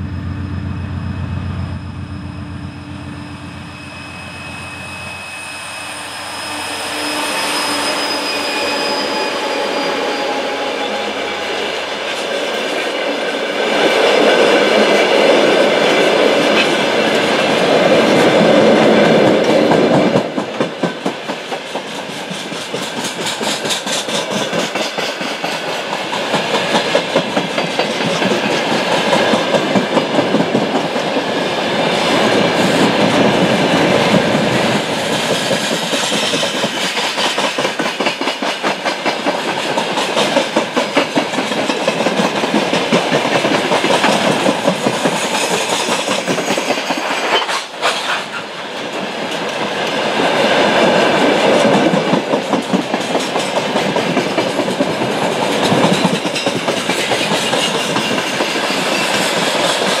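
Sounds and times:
train wheels clattering over rail joints: 15.8s - 31.2s, 32.5s - 50.0s, 51.2s - 60.0s.

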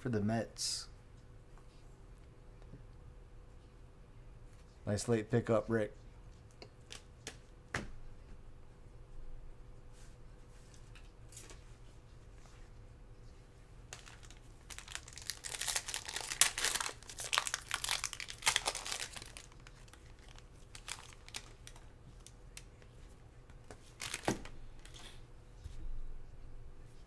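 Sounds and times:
foil wrapper crinkling and tearing: 13.9s - 22.3s, 24.0s - 25.0s.

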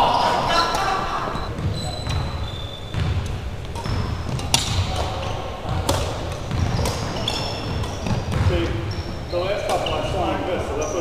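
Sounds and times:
sneaker squeaks on hardwood: 1.4s - 11.0s
racket striking shuttlecock: 2.0s - 8.8s.

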